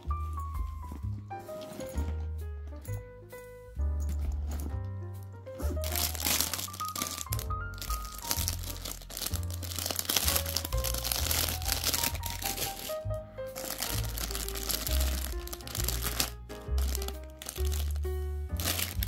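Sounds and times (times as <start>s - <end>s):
background music with bass line: 0.0s - 19.0s
plastic packaging crinkling: 5.6s - 19.0s.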